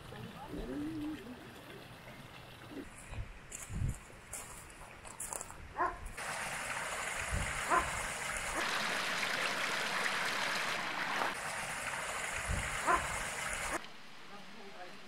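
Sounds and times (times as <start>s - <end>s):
water rushing from spillway: 6.2s - 13.8s.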